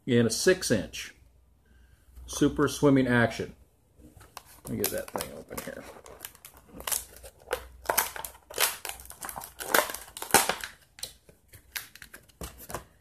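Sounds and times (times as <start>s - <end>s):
plastic bag crinkling: 4.4s - 11.0s.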